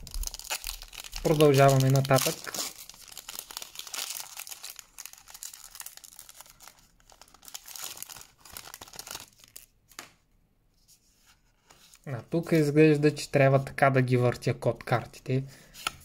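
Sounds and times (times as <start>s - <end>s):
foil wrapper crinkling: 0.0s - 9.7s.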